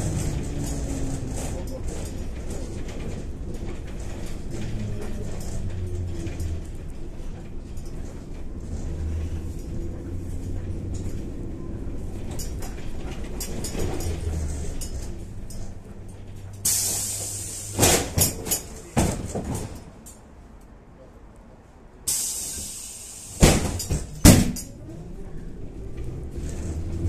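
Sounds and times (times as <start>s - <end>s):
clicking and rattling: 0.0s - 20.2s
trolleybus hum and road rumble: 0.0s - 27.0s.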